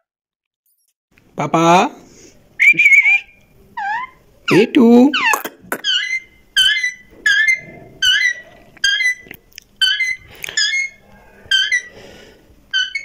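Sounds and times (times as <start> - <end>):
parakeet chirping: 2.8 - 12.1, 12.7 - 13.0.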